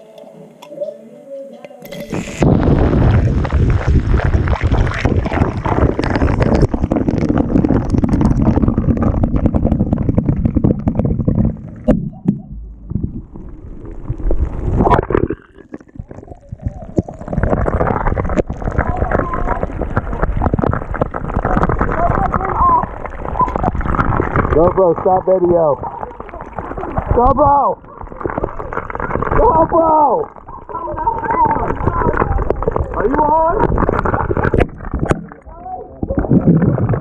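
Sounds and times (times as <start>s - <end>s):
carbonated water fizzing: 1.8s - 37.0s
low rumble: 2.3s - 15.3s.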